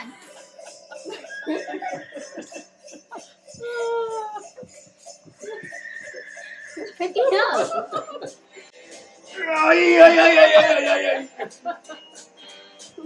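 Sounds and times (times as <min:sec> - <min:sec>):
people laughing: 0:00.0 - 0:04.8, 0:06.9 - 0:08.4, 0:09.5 - 0:12.1.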